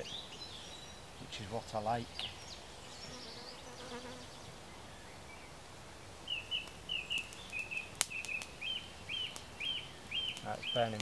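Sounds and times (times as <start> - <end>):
songbird chirping: 0.0 - 11.0
small fire crackling: 4.4 - 11.0
fire snap: 5.6 - 11.0.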